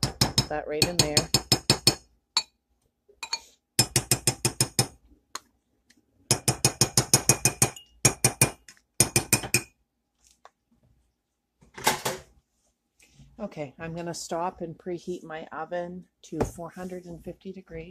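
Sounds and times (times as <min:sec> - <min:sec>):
spoon clinking on glass bowl: 0:03.2 - 0:03.5.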